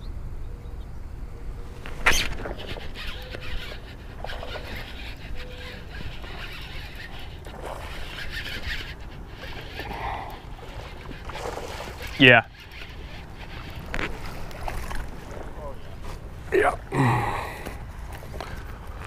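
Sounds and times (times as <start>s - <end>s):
fishing reel whirring and ticking: 1.9s - 15.5s.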